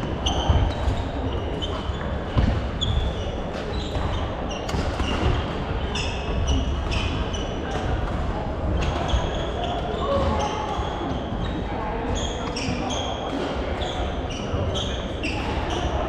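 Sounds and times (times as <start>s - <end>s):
shoes squeaking on wooden floor: 0.0s - 7.8s
busy hall background noise: 0.0s - 16.0s.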